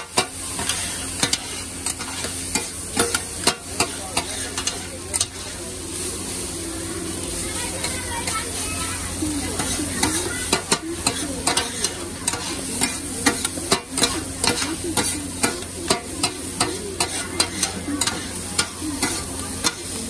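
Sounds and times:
rice sizzling on a griddle: 0.0 - 20.0
low hum: 5.7 - 8.0
metal spatulas clacking: 9.6 - 19.9.

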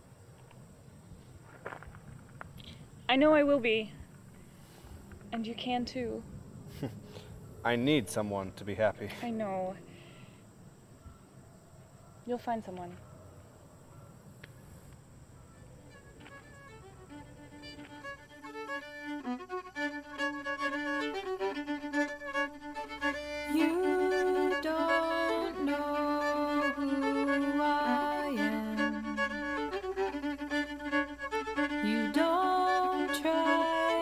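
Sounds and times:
instrumental melodic music: 15.9 - 34.0.

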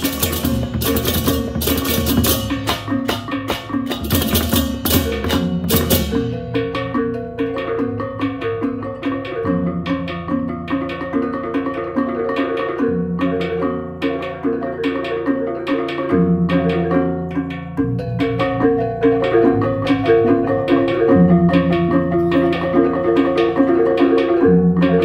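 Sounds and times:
cymbals striking: 0.0 - 25.0
drums: 0.0 - 25.0
gong-chimes interlocking melody: 17.8 - 23.7.

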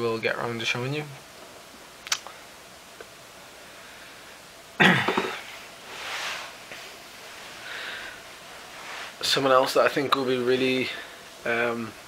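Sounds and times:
soft hiss: 0.0 - 12.0
man coughing: 4.8 - 5.4.

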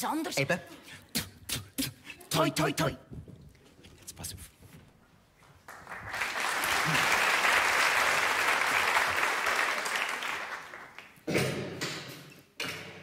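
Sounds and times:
audience applauding: 5.5 - 11.2.

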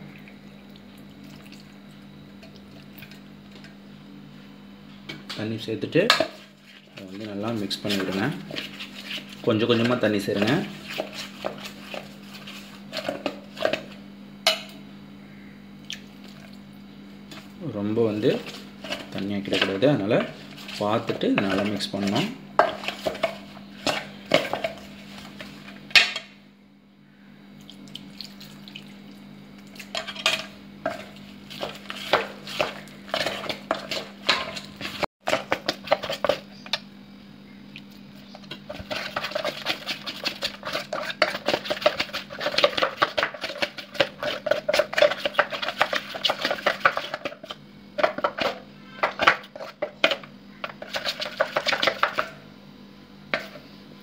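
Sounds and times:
spoon scraping metal bowl: 7.5 - 13.9, 18.2 - 26.1, 29.8 - 36.4, 38.5 - 52.2.

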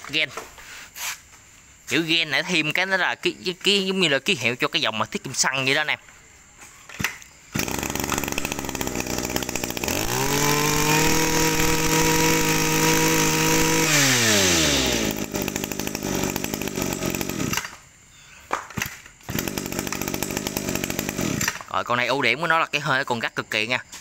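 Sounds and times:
brush cutter engine revving: 7.0 - 17.8, 18.8 - 21.8.

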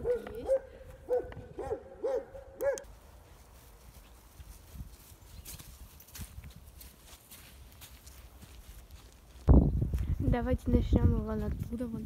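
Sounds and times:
footsteps on mud and slushy snow: 2.9 - 12.0.

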